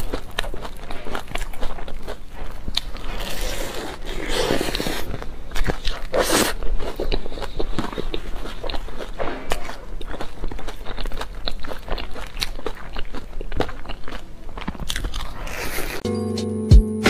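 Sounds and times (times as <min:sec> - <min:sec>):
mouth clicks and smacks chewing: 0:00.0 - 0:03.0, 0:05.5 - 0:16.0
biting into pastry: 0:00.0 - 0:16.0.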